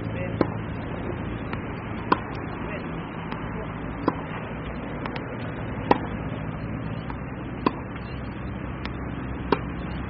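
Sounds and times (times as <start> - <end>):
steady background hum: 0.0 - 10.0
ball bouncing: 0.3 - 0.7, 1.4 - 2.5, 3.2 - 6.2, 6.9 - 8.2, 8.8 - 9.8
racket hitting tennis ball: 0.3 - 0.8, 1.4 - 8.2, 8.8 - 10.0.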